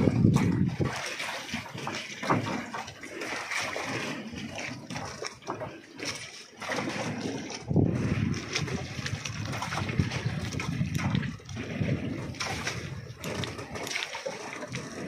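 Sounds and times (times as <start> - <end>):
water splashing against boat: 0.0 - 15.0.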